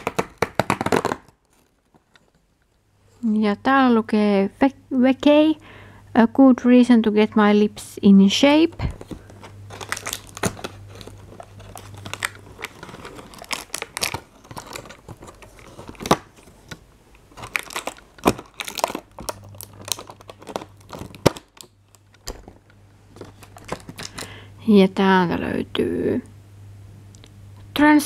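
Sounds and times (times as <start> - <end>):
cardboard and paper rustling: 8.6 - 24.4.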